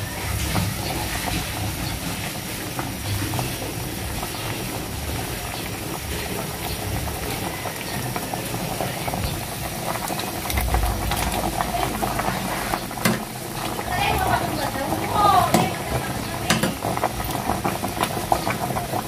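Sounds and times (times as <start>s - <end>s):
soup boiling and bubbling: 0.0s - 19.0s
low rumble: 10.2s - 15.1s.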